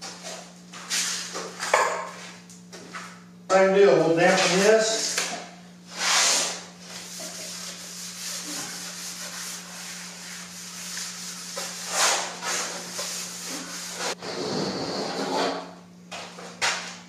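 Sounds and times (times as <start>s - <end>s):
rag rubbing plastic sheet: 5.9s - 15.6s.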